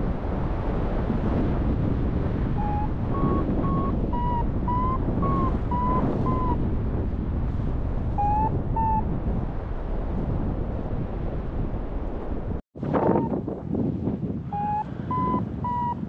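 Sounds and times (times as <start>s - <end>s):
wind rushing on microphone: 0.0s - 16.0s
variometer beeping: 14.6s - 16.0s.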